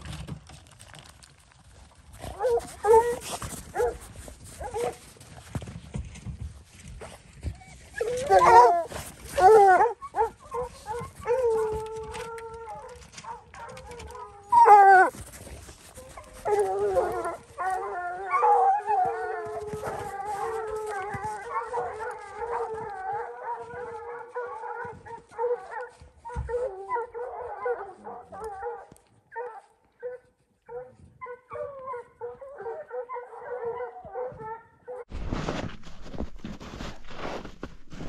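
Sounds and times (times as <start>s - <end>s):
pack of hounds bawling: 7.7s - 15.3s, 16.0s - 28.9s
hounds howling: 8.0s - 15.2s, 16.0s - 35.0s.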